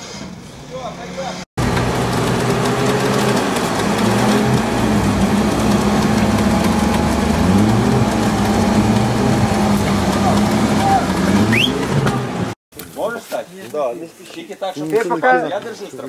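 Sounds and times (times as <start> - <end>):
off-road vehicle engine running: 1.6 - 12.6.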